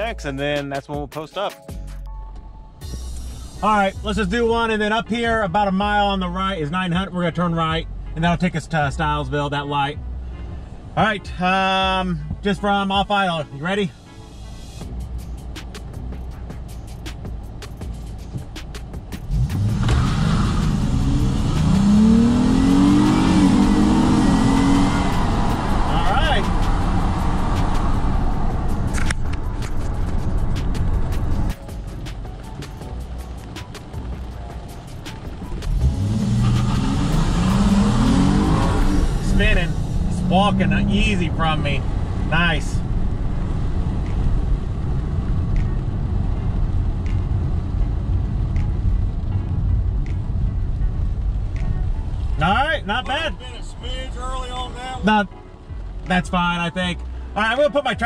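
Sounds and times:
car engine revving: 17.1s - 51.6s, 52.4s - 56.6s.

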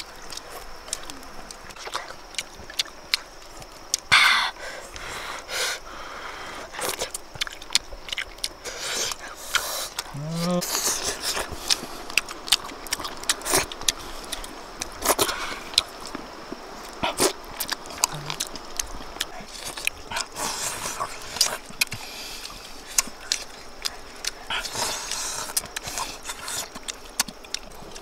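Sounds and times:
chewing clicks: 0.0s - 4.1s, 6.7s - 28.0s
slurping: 6.8s - 16.0s
lip smacks: 16.8s - 28.0s.

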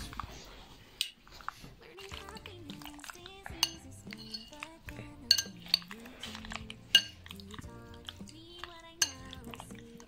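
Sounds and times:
background music: 1.8s - 10.0s
metal utensil clinking glass bowl: 2.2s - 7.4s, 8.0s - 10.0s.

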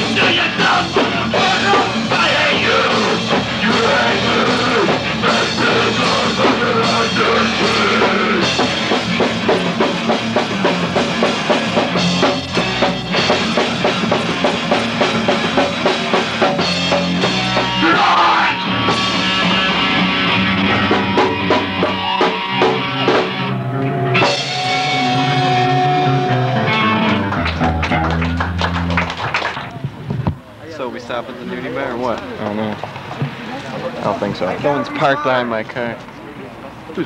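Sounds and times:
pounding drum kit: 0.0s - 29.2s
live rock band playing: 0.0s - 30.0s
distorted electric guitar: 0.0s - 30.4s.

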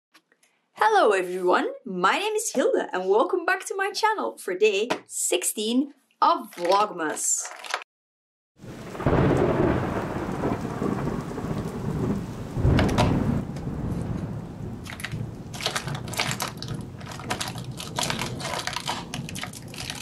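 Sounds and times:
rain: 8.6s - 20.0s
thunder rumble: 8.6s - 20.0s
cardboard crackling: 14.9s - 20.0s.

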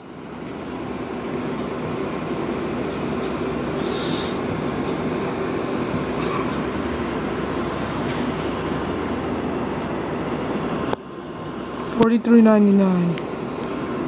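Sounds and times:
subway train rumbling: 0.0s - 14.0s
brief hiss: 3.8s - 4.4s.

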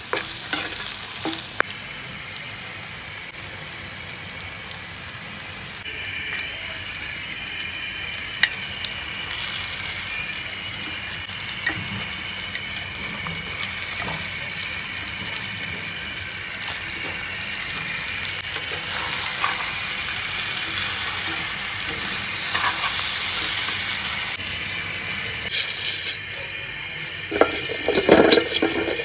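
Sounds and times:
prawns sizzling in oil: 0.0s - 29.0s
metal spatula stirring: 20.7s - 23.8s.

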